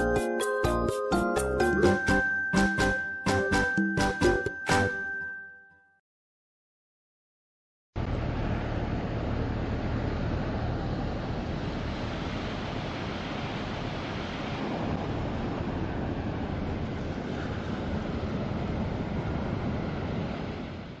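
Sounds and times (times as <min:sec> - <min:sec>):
ocean surf breaking on beach: 0:08.3 - 0:21.0
wind on microphone: 0:11.2 - 0:21.0.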